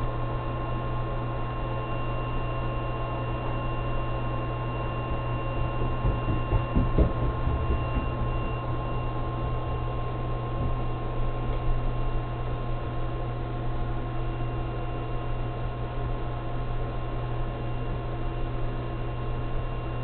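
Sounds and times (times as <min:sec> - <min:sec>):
faint high whine: 0:00.0 - 0:20.0
low electrical hum: 0:00.0 - 0:20.0
soft low knocks: 0:05.7 - 0:08.8.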